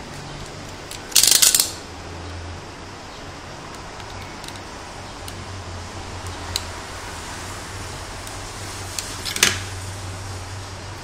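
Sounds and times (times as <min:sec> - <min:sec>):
steady low hum: 0:00.0 - 0:11.0
wire cutters clicking: 0:00.4 - 0:01.8, 0:03.7 - 0:05.4.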